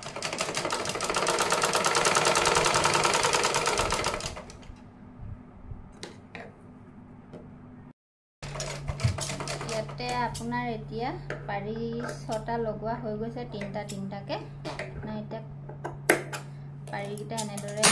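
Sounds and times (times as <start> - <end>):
sewing machine stitching: 0.0 - 4.6, 8.4 - 10.2.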